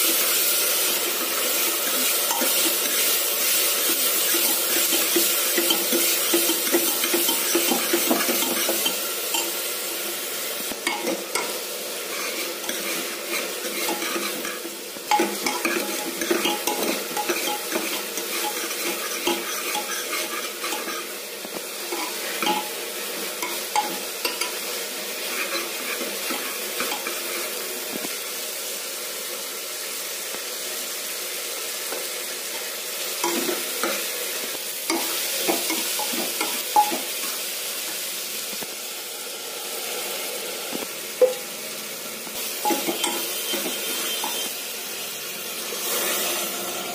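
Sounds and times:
vegetables sizzling: 0.0s - 46.9s
spatula scraping a pot: 12.1s - 14.6s, 15.2s - 21.1s.

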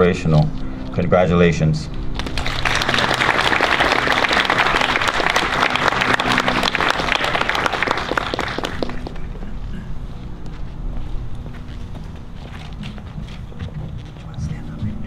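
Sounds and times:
audience applauding: 2.2s - 9.4s.

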